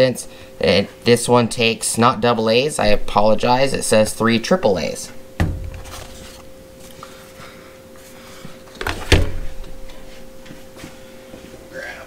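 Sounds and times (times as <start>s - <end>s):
plastic packaging handling: 5.6s - 7.0s.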